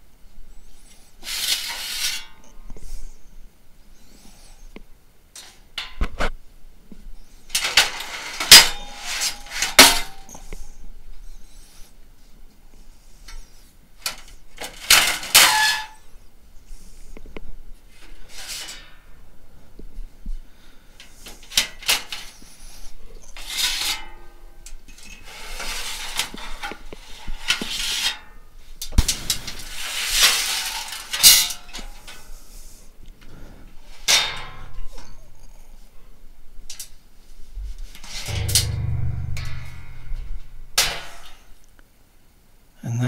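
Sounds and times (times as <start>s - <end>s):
metal scraping and sliding: 1.2s - 2.4s, 7.5s - 10.6s, 14.8s - 16.0s, 23.3s - 24.2s, 25.0s - 28.2s, 37.7s - 41.5s
sheet metal panels clanking: 7.6s - 10.3s, 38.0s - 41.4s.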